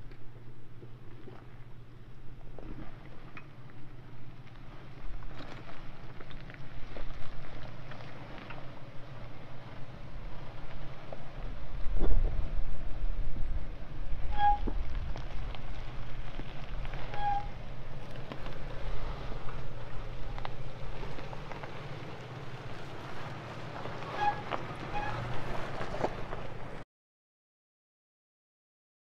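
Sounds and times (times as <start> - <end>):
truck engine crawling: 0.0 - 26.8
tyres crunching over rocks: 3.2 - 12.4, 14.7 - 26.8
wind on microphone: 11.4 - 17.5
short high squeaks: 14.3 - 14.8, 17.1 - 17.6, 24.1 - 25.3.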